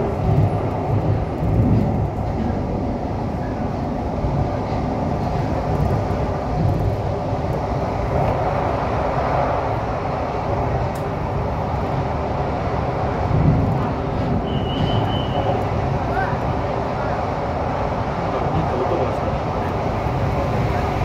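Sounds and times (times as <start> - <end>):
metro train running in tunnel: 0.0 - 21.0.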